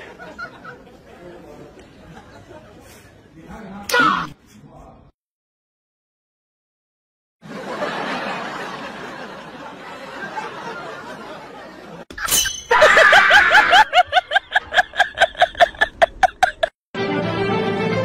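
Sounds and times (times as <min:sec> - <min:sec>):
person laughing: 0:12.7 - 0:16.8.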